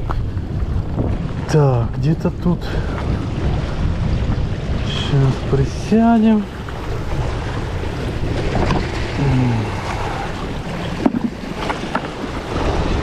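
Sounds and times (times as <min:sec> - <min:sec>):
sea waves on shore: 0:00.0 - 0:13.0
wind buffeting microphone: 0:00.0 - 0:13.0
low vocal sound: 0:09.1 - 0:10.6.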